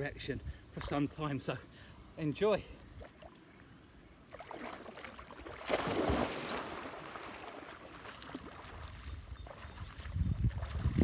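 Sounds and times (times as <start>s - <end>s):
water splashing from swimming: 4.3s - 11.0s
loud splash into water: 5.6s - 6.9s.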